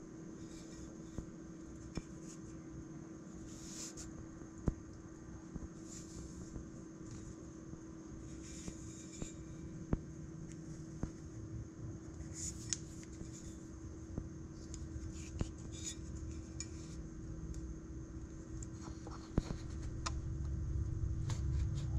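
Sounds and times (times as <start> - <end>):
steady low hum: 0.0 - 21.9
low rumble: 19.8 - 21.9.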